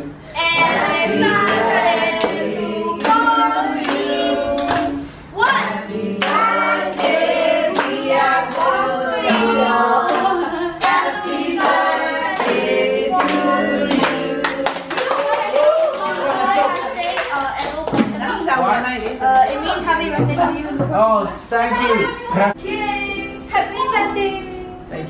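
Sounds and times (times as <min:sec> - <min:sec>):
group of voices singing together: 0:00.0 - 0:17.0, 0:22.4 - 0:23.5.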